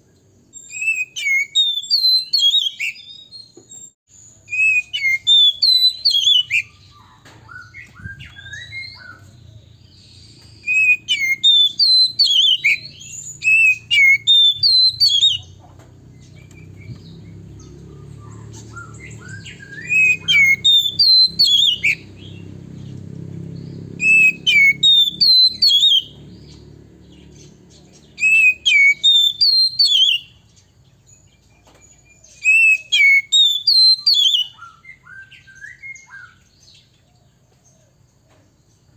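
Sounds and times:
bird singing whistled notes: 0.4 - 37.1.

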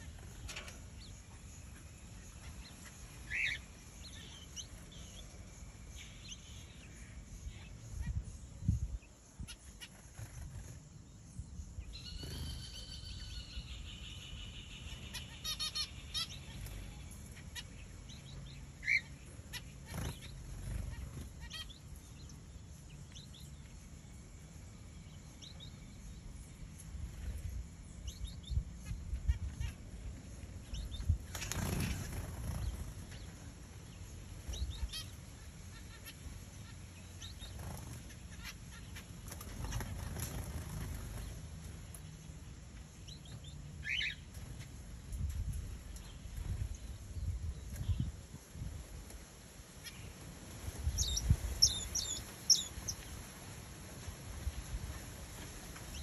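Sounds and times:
noisy rustle: 25.4 - 43.4, 44.1 - 56.0.

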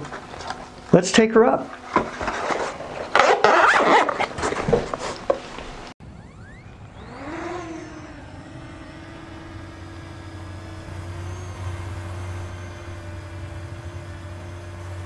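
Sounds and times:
low rumble: 6.0 - 14.4
drone motors whining and humming: 6.0 - 15.0.

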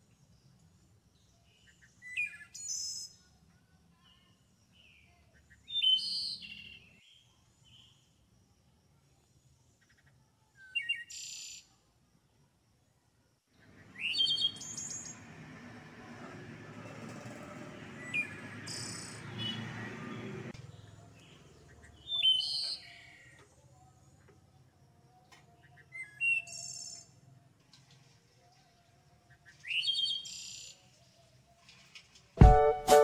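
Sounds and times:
small birds chirping: 13.6 - 15.5.

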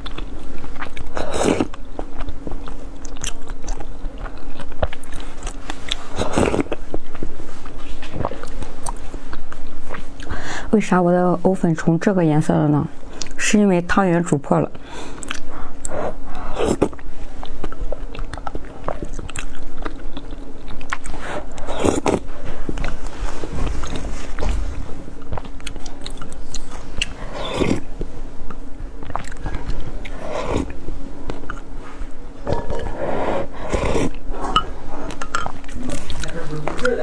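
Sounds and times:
person sipping and chewing: 0.0 - 10.3, 15.0 - 36.4
faint steady hum: 0.0 - 37.0
loud mouth noises: 20.9 - 22.3, 25.4 - 27.9, 32.4 - 34.2.

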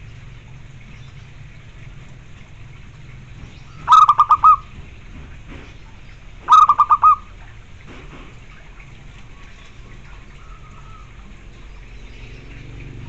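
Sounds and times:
dove cooing: 3.8 - 4.7, 6.4 - 7.3.

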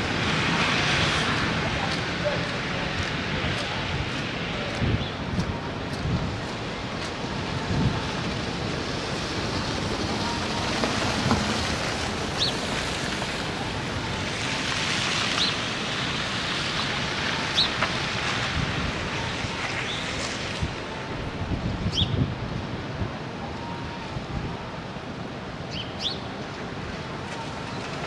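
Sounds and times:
van tyres swishing through slush: 0.0 - 4.8, 6.4 - 20.6.

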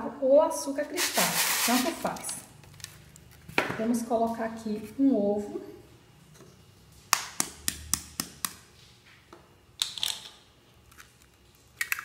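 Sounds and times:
eggshell cracking: 11.8 - 12.0.

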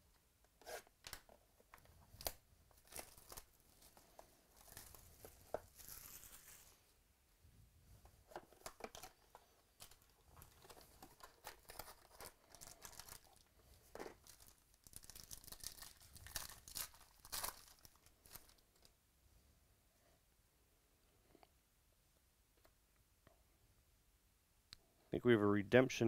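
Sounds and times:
packaging crinkling and tearing: 2.2 - 6.8, 8.4 - 18.9.

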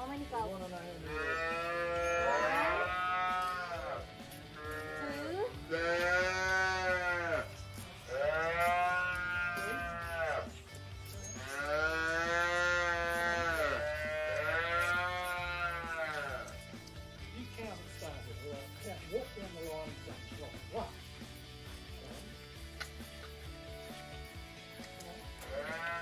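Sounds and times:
calves mooing: 1.0 - 16.9, 25.2 - 26.0.

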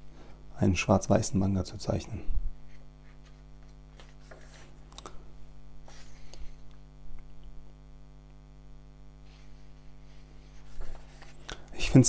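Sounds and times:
electrical hum: 0.0 - 12.0
pages turning: 2.7 - 5.1, 10.1 - 11.7.

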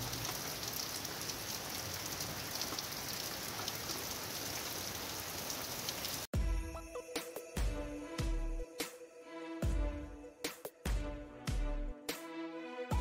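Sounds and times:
rain on pavement: 0.0 - 6.3
music: 6.3 - 13.0.

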